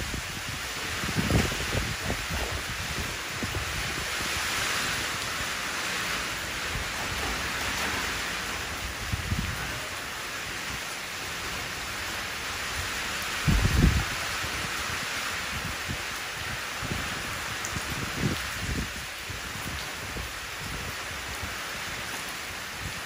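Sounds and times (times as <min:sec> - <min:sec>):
rain falling into puddle: 0:00.0 - 0:23.0.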